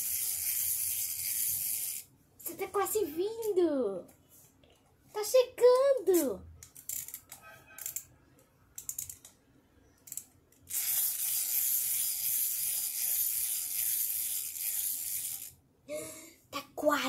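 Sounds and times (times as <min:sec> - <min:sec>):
toy gear whirring: 0:00.0 - 0:03.6, 0:06.0 - 0:08.1, 0:08.8 - 0:09.4, 0:10.0 - 0:15.6.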